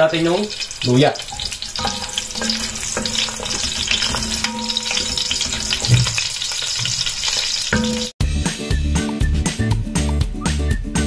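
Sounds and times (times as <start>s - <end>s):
ginger sizzling in hot oil: 0.0s - 8.2s.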